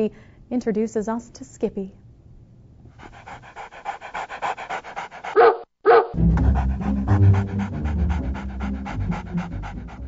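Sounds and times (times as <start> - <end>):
dog panting: 3.0 - 5.7, 6.3 - 10.0
dog barking: 5.2 - 6.2.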